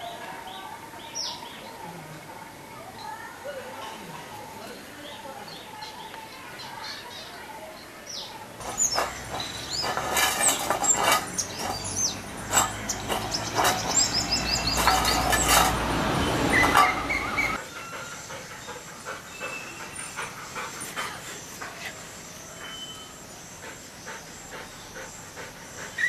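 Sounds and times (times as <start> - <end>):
bird chirping high: 8.6 - 20.2.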